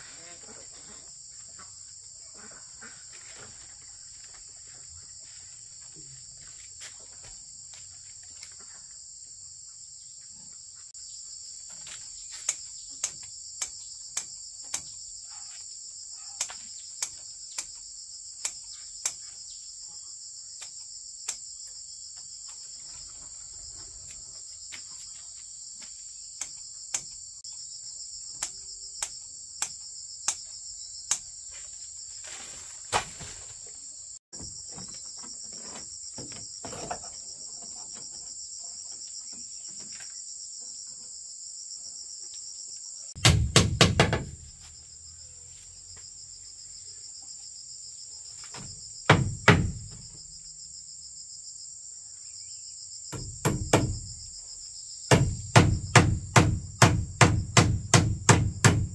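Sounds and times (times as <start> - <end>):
high insect chorus: 0.0 - 58.9
sharp knocks: 43.2 - 44.4, 48.6 - 50.0, 53.1 - 54.1, 55.1 - 58.9.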